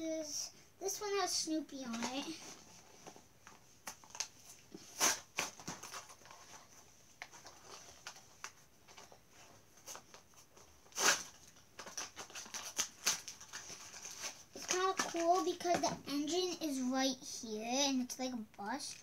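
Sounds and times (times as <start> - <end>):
plastic packaging crackling: 5.0 - 9.1, 10.9 - 15.9.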